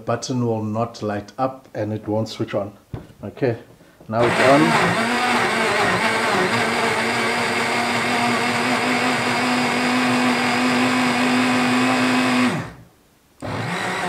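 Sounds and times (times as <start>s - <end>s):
blender running: 4.2s - 12.8s, 13.4s - 14.0s.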